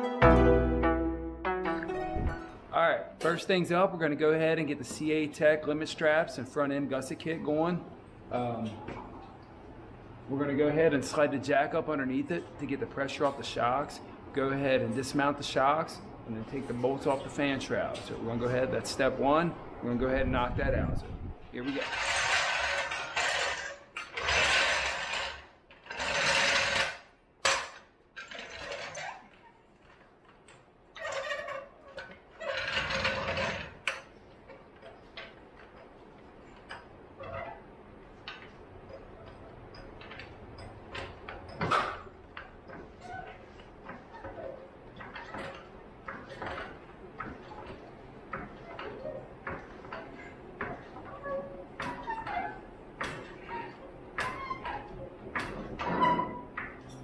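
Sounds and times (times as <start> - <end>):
floor jack casters rattling: 10.6 - 57.0.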